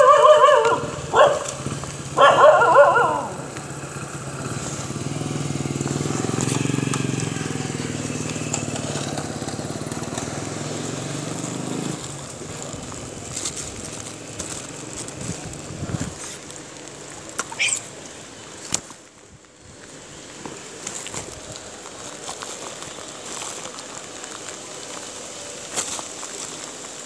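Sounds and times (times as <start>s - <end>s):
motorcycle engine running: 0.7s - 16.3s
high squeak: 17.5s - 17.9s.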